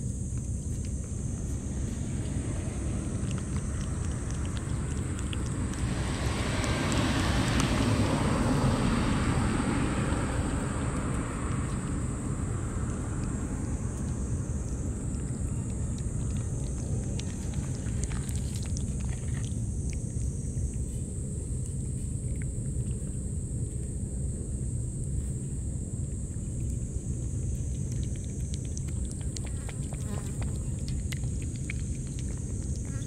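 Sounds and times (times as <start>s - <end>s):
cat licking and chewing food: 0.0s - 33.0s
low outdoor rumble: 0.0s - 33.0s
vehicle passing: 1.3s - 19.8s.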